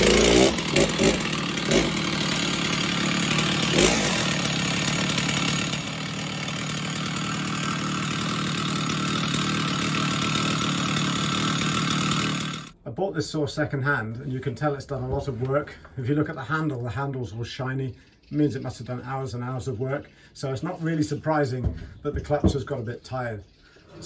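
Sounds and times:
chainsaw idling: 0:00.0 - 0:12.8.

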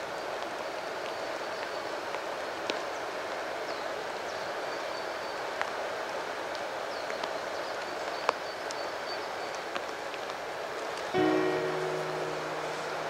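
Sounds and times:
river rushing through a weir: 0:09.6 - 0:13.0.

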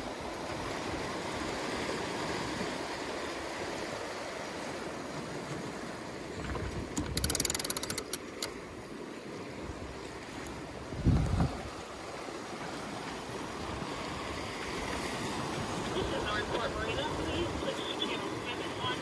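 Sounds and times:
water and wind rushing past hull: 0:00.0 - 0:19.0
winch ratcheting clicks: 0:06.9 - 0:08.6.

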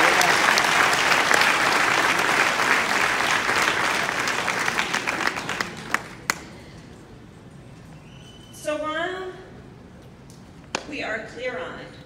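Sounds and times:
audience applauding: 0:00.0 - 0:06.4.

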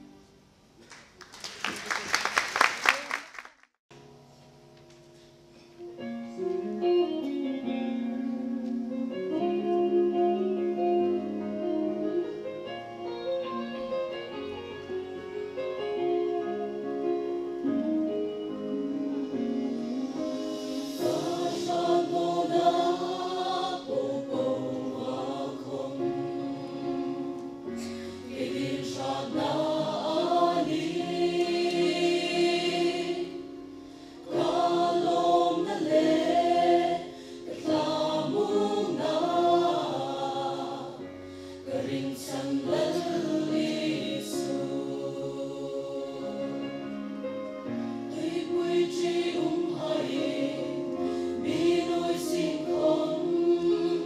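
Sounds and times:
mixed choir singing gospel: 0:18.9 - 0:47.1, 0:48.1 - 0:54.0.

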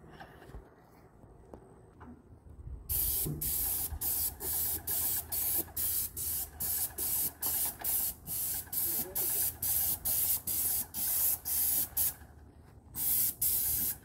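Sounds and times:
paint spray gun hissing: 0:02.9 - 0:12.2, 0:13.0 - 0:14.0.

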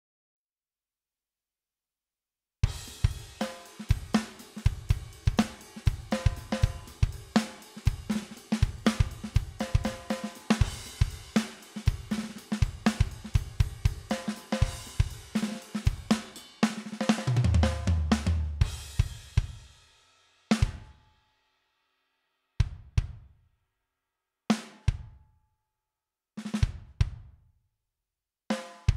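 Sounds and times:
drum kit groove: 0:02.6 - 0:21.0, 0:26.4 - 0:27.4, 0:28.5 - 0:28.9.

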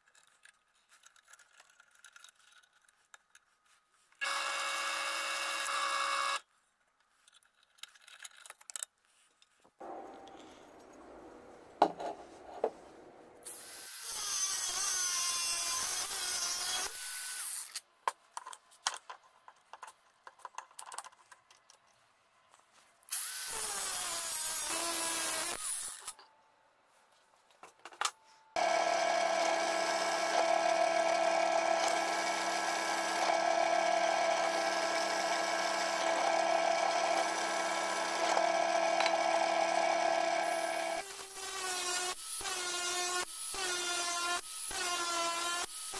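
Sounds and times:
drill press motor humming: 0:04.2 - 0:06.4, 0:28.6 - 0:41.0
angle grinder cutting steel: 0:13.4 - 0:17.7, 0:28.6 - 0:45.9.

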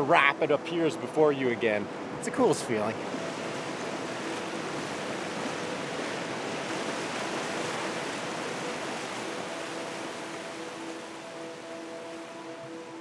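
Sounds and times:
whitewater rushing: 0:00.0 - 0:13.0.

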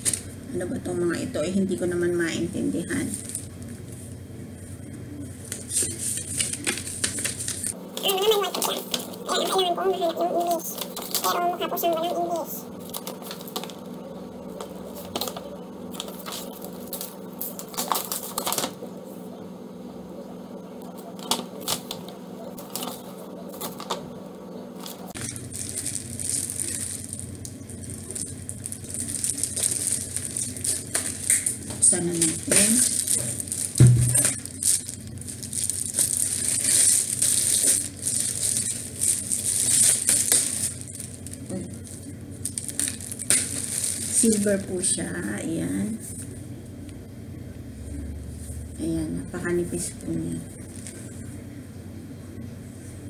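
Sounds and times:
steady low hum: 0:00.0 - 0:53.0
plastic wrapping crinkling: 0:02.8 - 0:04.2, 0:05.4 - 0:09.6, 0:10.4 - 0:13.9, 0:14.5 - 0:18.8, 0:21.0 - 0:24.0, 0:24.8 - 0:46.3, 0:49.8 - 0:51.3
paper rustling and crackling: 0:05.4 - 0:09.6, 0:10.4 - 0:11.9, 0:12.8 - 0:13.8, 0:14.6 - 0:18.8, 0:21.0 - 0:24.0, 0:24.8 - 0:44.9, 0:50.6 - 0:51.2.

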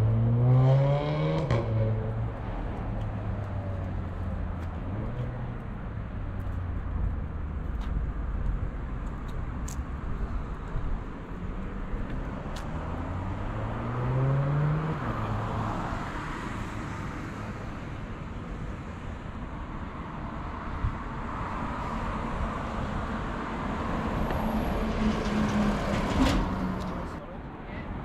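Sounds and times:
vehicle engine accelerating: 0:00.0 - 0:02.2
cars driving past: 0:00.0 - 0:28.0.

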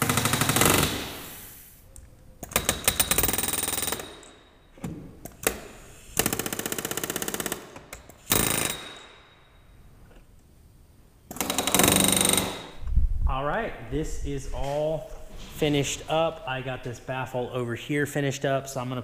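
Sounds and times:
pneumatic rivet gun hammering: 0:05.2 - 0:09.2.

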